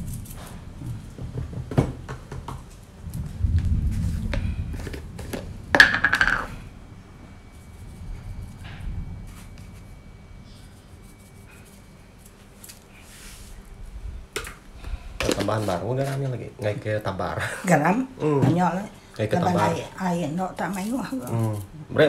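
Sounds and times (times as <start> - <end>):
dull rumble: 0.0 - 11.2.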